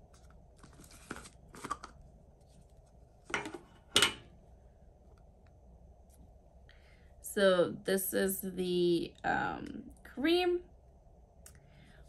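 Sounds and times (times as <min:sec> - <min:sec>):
jar scraping and rustling: 0:00.2 - 0:02.0.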